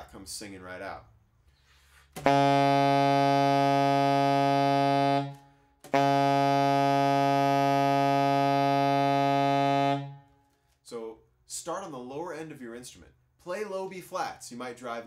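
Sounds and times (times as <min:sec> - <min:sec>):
saxophone long low note: 0:02.2 - 0:10.3.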